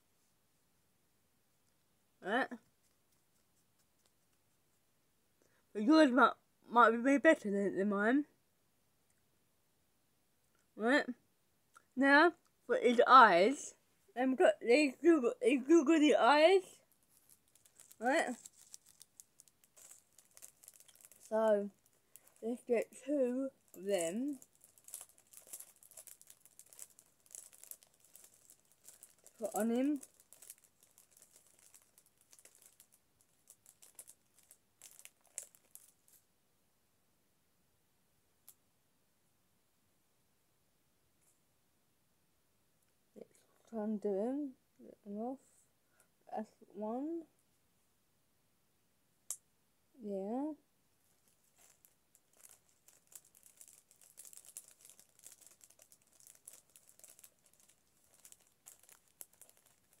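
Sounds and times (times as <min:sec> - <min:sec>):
sticker sheet crinkling: 0:16.9 - 0:36.2, 0:51.2 - 1:00.0.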